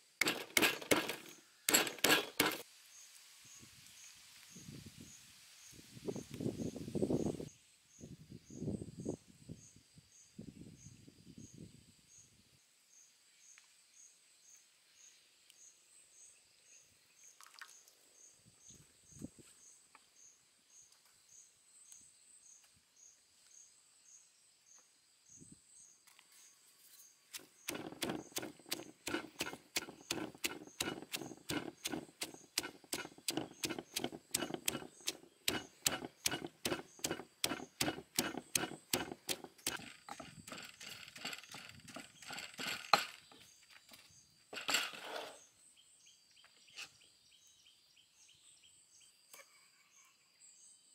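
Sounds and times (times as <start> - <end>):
pestle pounding in stone mortar: 0.2 - 2.6, 27.4 - 43.2
insect chirping: 26.9 - 44.6.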